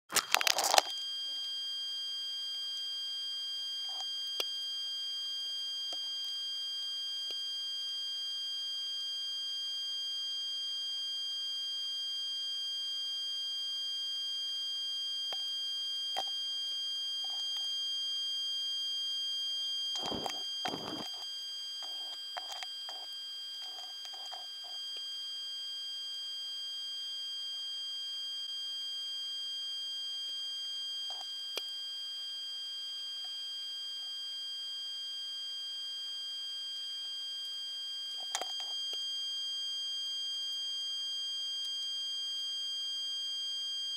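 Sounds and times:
high-pitched electronic whine: 0:19.4 - 0:43.9.

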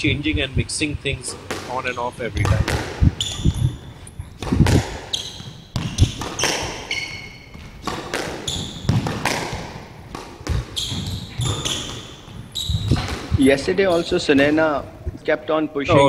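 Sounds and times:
squash ball hitting rackets and walls: 0:01.2 - 0:14.7
shoes squeaking on wooden floor: 0:01.2 - 0:14.8.

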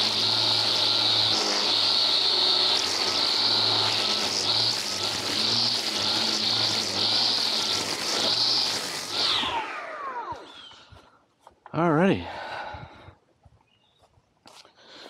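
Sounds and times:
string trimmer motor whining: 0:00.0 - 0:11.1.

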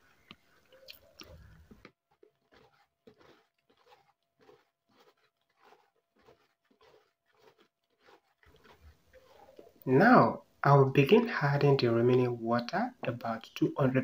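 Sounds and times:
spatula squelching and scraping paste: 0:00.0 - 0:09.9.

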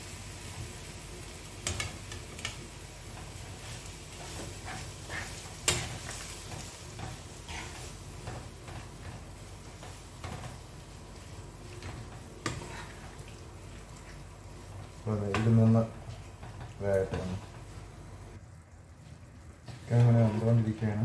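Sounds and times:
chicken sizzling in a frying pan: 0:00.0 - 0:21.0
metal spoon tapping and scraping pan: 0:01.6 - 0:02.6, 0:04.2 - 0:09.2, 0:11.8 - 0:13.2.

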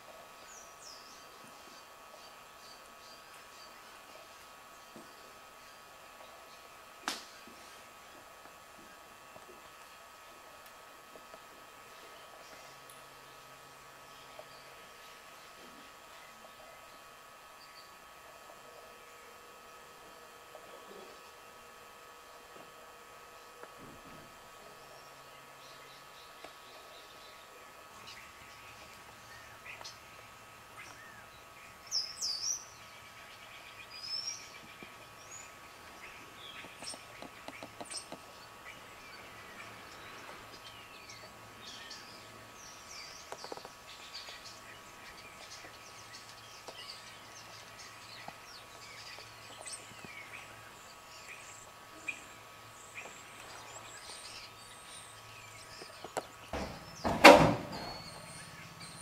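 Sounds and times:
small birds chirping: 0:00.0 - 0:59.0
loud bump: 0:56.6 - 0:58.1.

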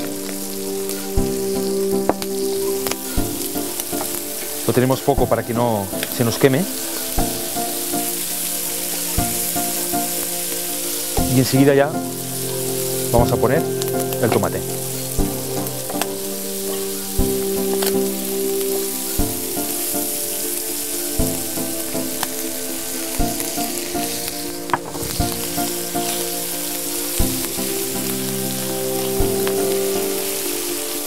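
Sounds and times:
food sizzling in oil: 0:00.0 - 0:31.0
soft background music: 0:00.0 - 0:31.0.

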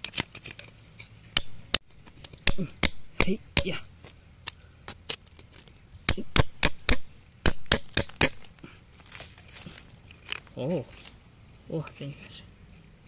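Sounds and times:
chisel chipping at rock: 0:01.4 - 0:03.8, 0:06.1 - 0:08.5.

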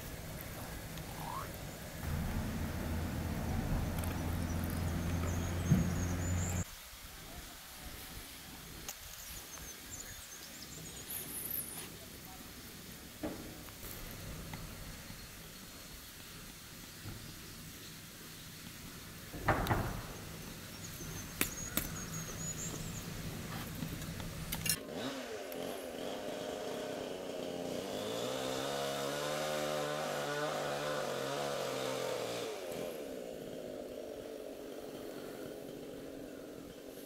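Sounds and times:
engine running: 0:00.0 - 0:06.6, 0:22.3 - 0:37.0.

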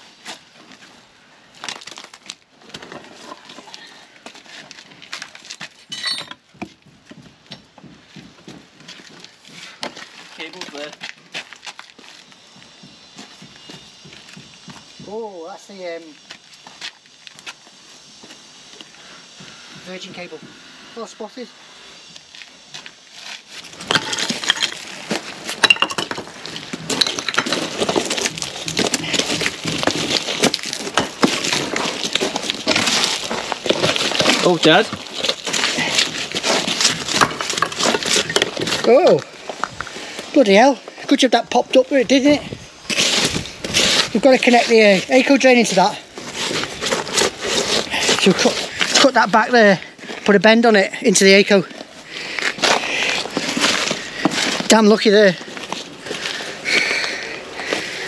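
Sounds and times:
rubble scraping and crunching: 0:00.0 - 0:17.6, 0:22.0 - 0:58.0
rubble clinking and clattering: 0:05.2 - 0:06.8, 0:23.7 - 0:39.9
stone ringing clink: 0:05.9 - 0:06.4, 0:25.6 - 0:26.2.

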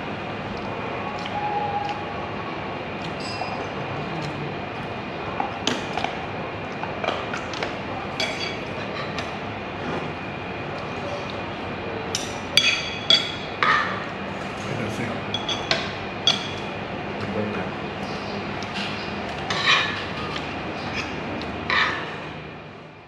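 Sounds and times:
cutlery clinking on plates: 0:08.2 - 0:09.3, 0:15.4 - 0:16.7, 0:18.6 - 0:22.2.

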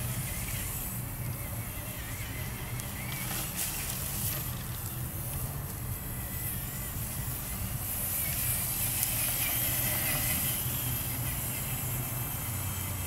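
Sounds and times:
toy car motor whine: 0:00.0 - 0:13.0
tyres crunching wood chips: 0:02.6 - 0:05.9.

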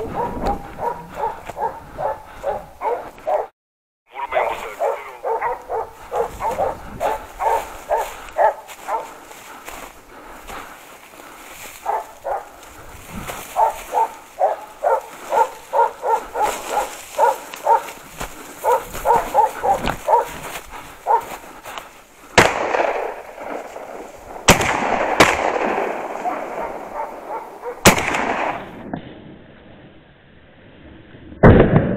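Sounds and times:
dogs barking: 0:00.0 - 0:03.5, 0:04.1 - 0:23.3, 0:25.4 - 0:28.0
rifle shots echoing: 0:22.3 - 0:29.0.

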